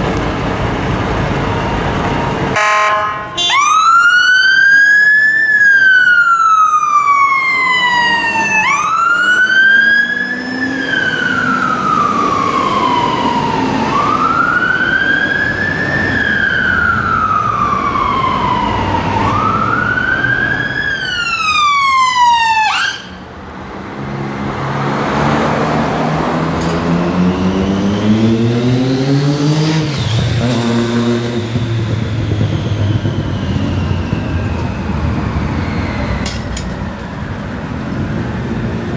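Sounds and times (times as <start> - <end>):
traffic noise: 0.0 - 38.9
fire engine siren wailing: 0.7 - 38.9
vehicle engine accelerating: 23.4 - 38.9.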